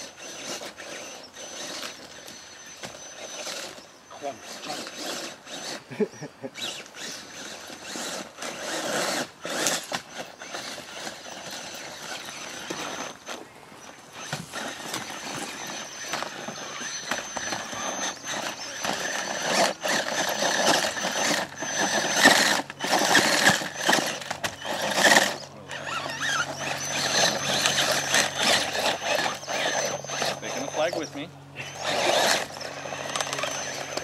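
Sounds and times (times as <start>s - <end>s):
rc truck motor whining: 0.0s - 34.0s
thin high whine: 9.2s - 34.0s.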